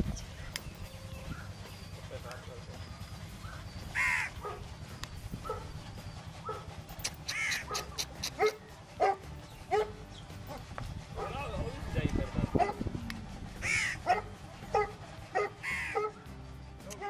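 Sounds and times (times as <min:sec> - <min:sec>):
steady low rumble: 0:00.0 - 0:16.8
animal cawing calls: 0:03.9 - 0:04.4, 0:07.2 - 0:08.4, 0:13.6 - 0:14.1, 0:15.6 - 0:16.0.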